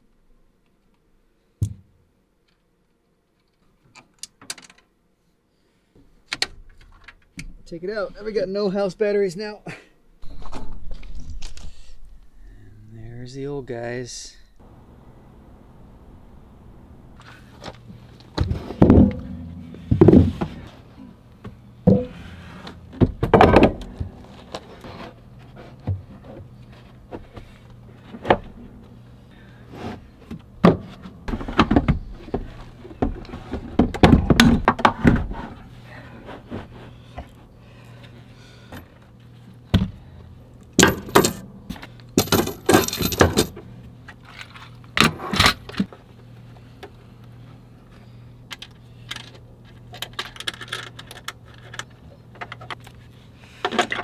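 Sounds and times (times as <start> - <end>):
heavy battery cases shifted: 17.2 - 21.0, 40.8 - 46.0
metal rails knocking together: 40.8 - 41.5
metallic clinking of loose hardware: 40.8 - 43.6.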